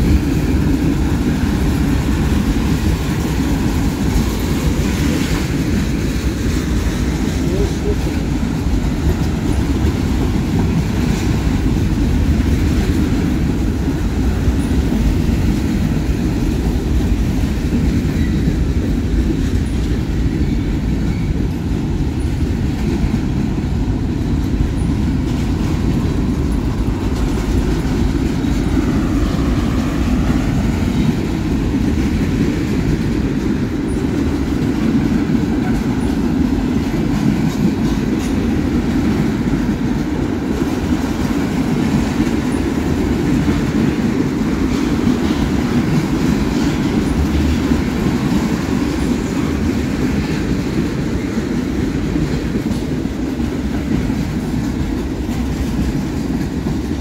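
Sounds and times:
freight train wheels rolling: 0.0 - 57.0.

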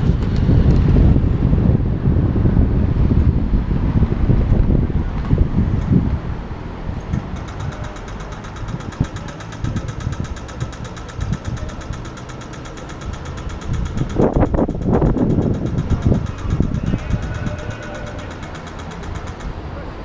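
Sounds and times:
traffic rumbling: 0.0 - 20.0
crossing signal ticking rapidly: 7.1 - 19.6.

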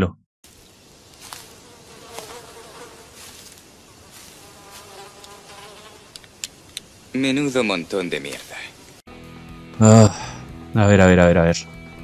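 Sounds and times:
flies buzzing: 0.5 - 9.0.

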